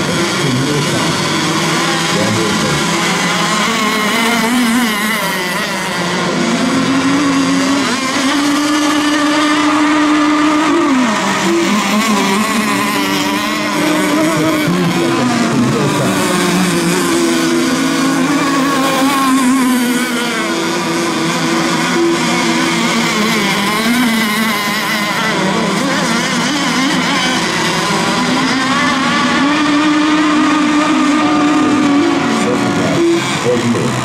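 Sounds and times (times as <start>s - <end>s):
radio-controlled boat motors racing: 0.0s - 34.0s.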